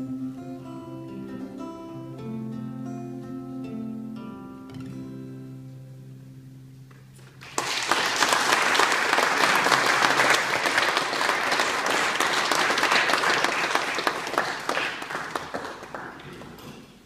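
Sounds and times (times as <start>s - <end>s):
acoustic guitar chord ringing: 0.0s - 7.2s
audience applause: 7.4s - 16.8s.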